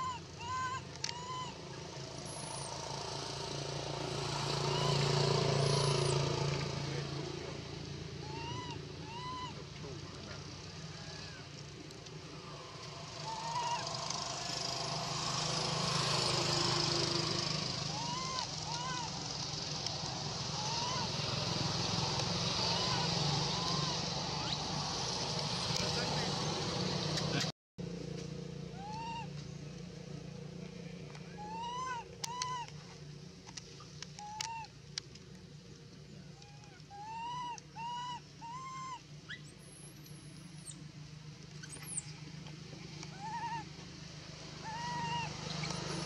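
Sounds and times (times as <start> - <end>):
rising then falling animal call: 0.0 - 1.8, 4.4 - 5.8, 8.2 - 9.7, 12.5 - 16.9, 17.7 - 19.2, 20.4 - 21.6, 22.4 - 24.7, 28.7 - 29.4, 31.3 - 32.8, 34.2 - 34.7, 36.4 - 39.4, 43.1 - 43.8, 44.6 - 46.0.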